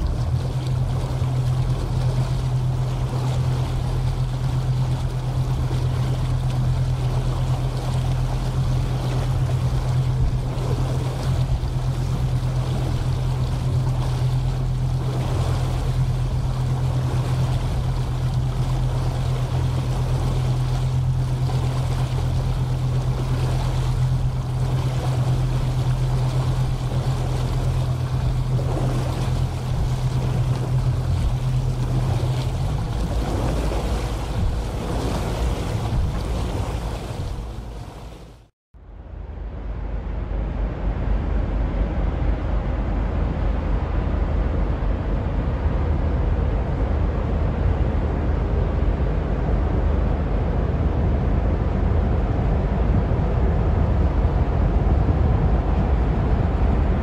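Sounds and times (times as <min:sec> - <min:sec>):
tugboat diesel engines droning: 0:00.0 - 0:38.5
water noise: 0:00.0 - 0:57.0
wind: 0:00.0 - 0:57.0.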